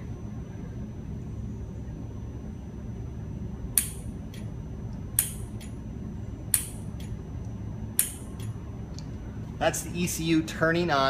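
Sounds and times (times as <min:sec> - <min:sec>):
steady low hum: 0:00.0 - 0:11.0
solenoid clicking: 0:03.7 - 0:04.5, 0:05.2 - 0:05.8, 0:08.0 - 0:08.6.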